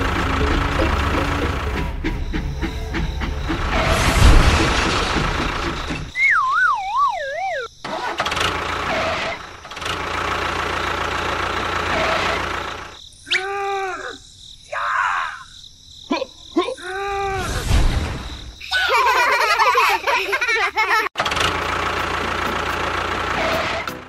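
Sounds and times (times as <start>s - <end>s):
engine-like running noise: 0.0s - 6.2s, 7.8s - 13.0s, 21.2s - 24.0s
wobbling downward whistle: 6.1s - 7.7s.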